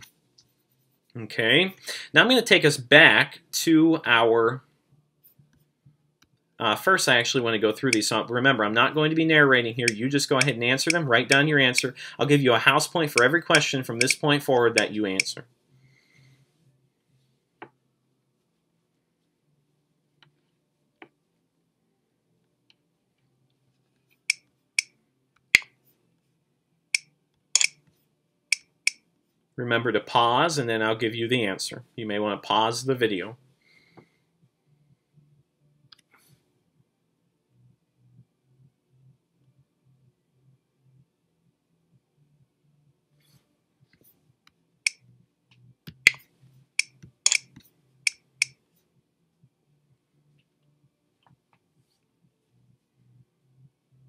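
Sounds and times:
computer mouse clicks: 0:27.0 - 0:27.8.

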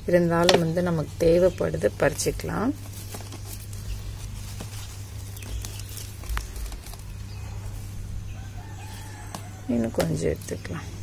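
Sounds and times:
plants rustling: 0:00.0 - 0:11.0
steady low hum: 0:00.0 - 0:11.0
stems snapping: 0:04.5 - 0:07.3, 0:09.2 - 0:10.8.

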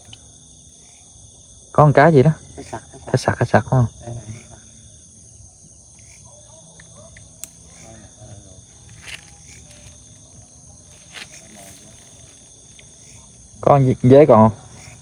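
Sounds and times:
crickets and insects trilling: 0:00.0 - 0:15.0
grass rustling: 0:07.0 - 0:15.0.

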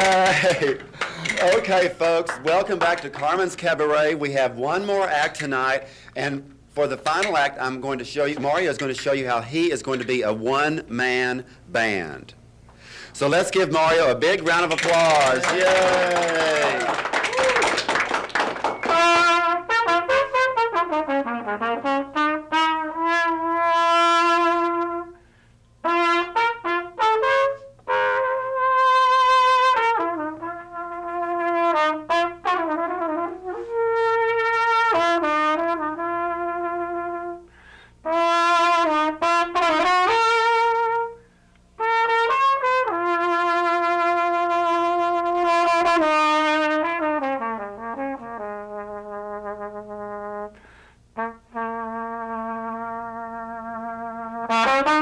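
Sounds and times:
solo trumpet melody: 0:18.8 - 0:55.0.

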